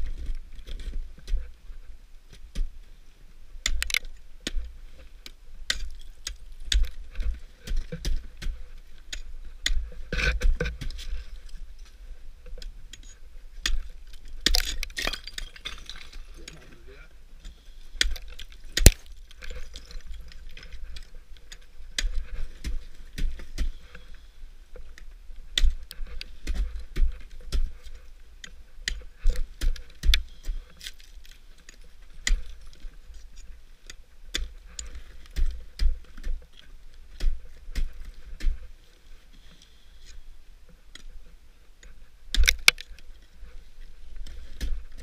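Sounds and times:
ice axe picks striking ice: 13.6s - 16.4s, 18.0s - 20.0s, 42.3s - 42.9s.

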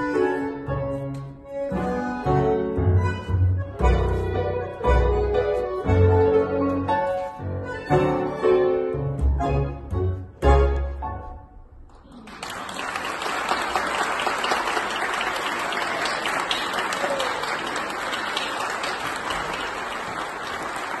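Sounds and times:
piano and double bass chord: 1.9s - 11.5s
audience applauding: 12.2s - 21.0s.

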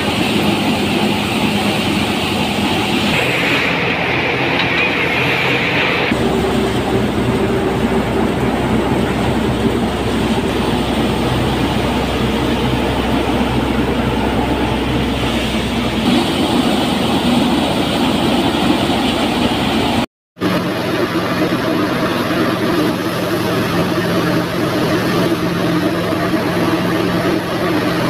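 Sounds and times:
tractor engine hum: 0.0s - 28.0s.

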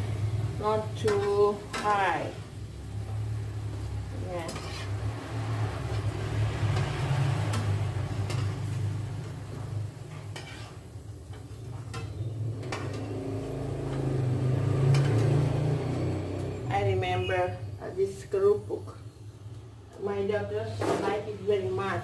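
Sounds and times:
crackers sizzling in hot oil: 0.0s - 16.7s.

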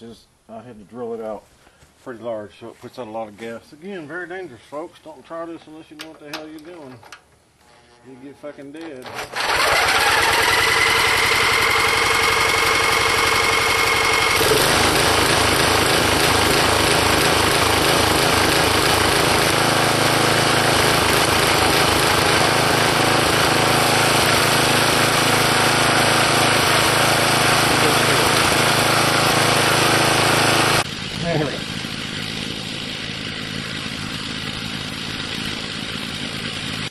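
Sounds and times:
small engine running: 7.6s - 36.9s
electric starter cranking: 8.6s - 36.9s.

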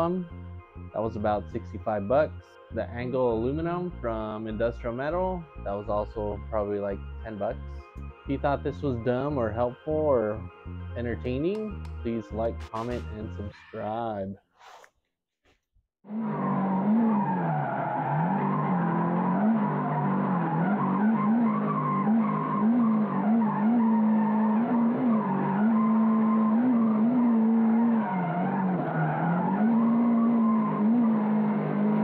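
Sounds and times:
car engine revving: 16.1s - 32.0s.

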